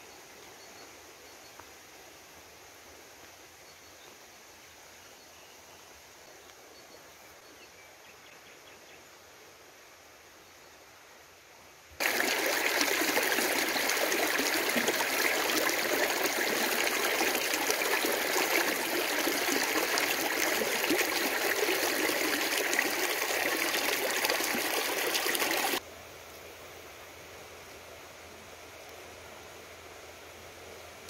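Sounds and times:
stream running over stones: 0:12.0 - 0:25.8.

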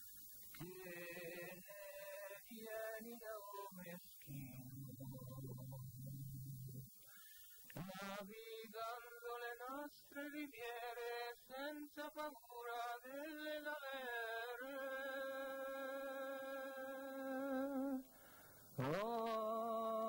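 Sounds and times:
person singing unaccompanied: 0:00.0 - 0:20.0.

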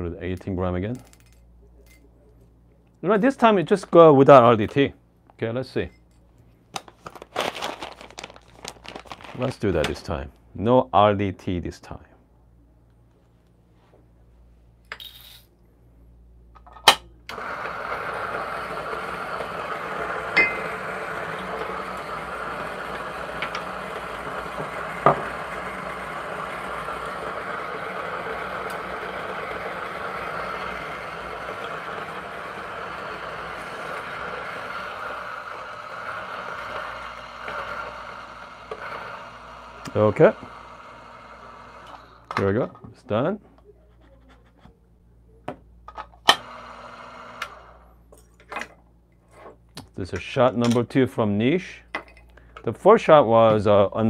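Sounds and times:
coffee grinder grinding: 0:07.0 - 0:09.6, 0:17.3 - 0:42.4, 0:46.3 - 0:47.9.

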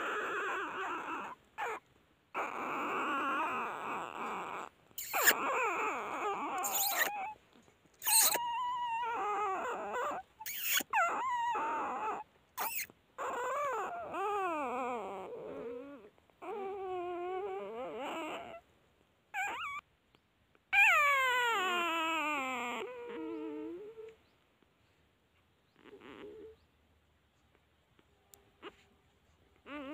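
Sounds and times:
puppies whimpering and crying: 0:00.0 - 0:18.6, 0:19.4 - 0:19.9, 0:20.7 - 0:24.2, 0:25.7 - 0:26.6, 0:29.6 - 0:29.9.

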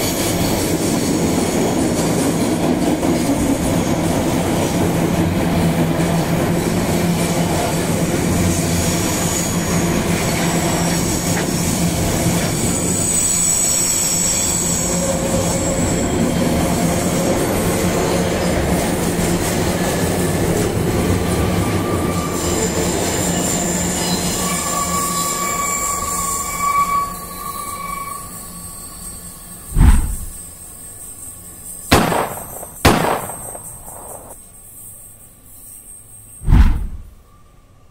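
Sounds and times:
train wheels rumbling on rail: 0:00.0 - 0:34.4
high wheel squeals: 0:07.6 - 0:18.8, 0:21.1 - 0:31.9.

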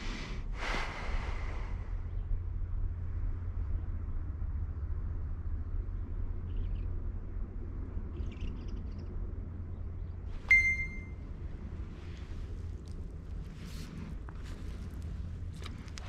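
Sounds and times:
wind rumbling on microphone: 0:00.0 - 0:10.4, 0:11.1 - 0:16.0
faint high chirps: 0:10.4 - 0:11.2.

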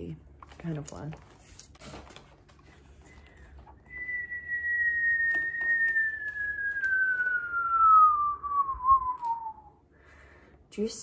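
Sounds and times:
person whistling sliding note: 0:03.8 - 0:09.7.

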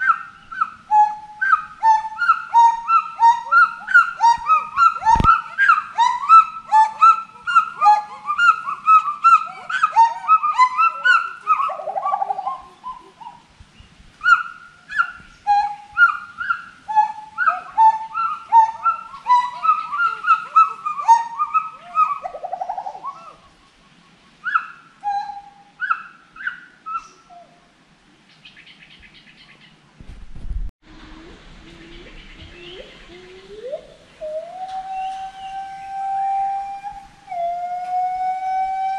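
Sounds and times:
gibbons whooping: 0:00.0 - 0:13.4, 0:14.3 - 0:23.4, 0:31.0 - 0:38.9
low rumble: 0:30.0 - 0:34.1.

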